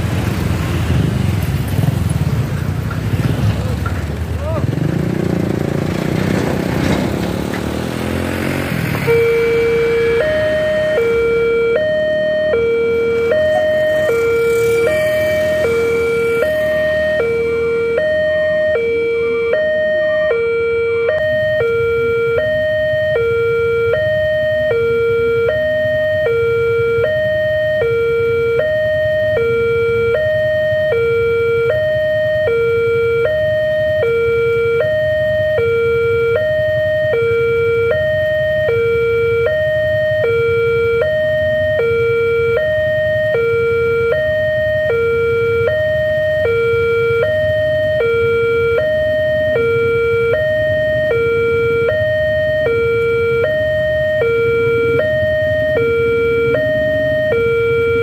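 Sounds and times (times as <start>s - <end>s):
level crossing alarm two-tone: 8.0s - 58.0s.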